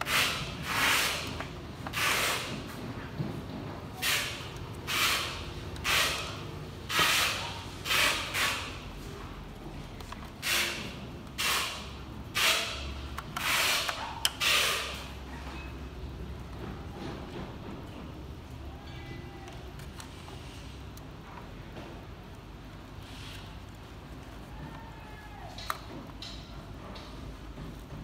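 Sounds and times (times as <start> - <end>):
screwdriver rasping on screws: 10.2 - 15.1.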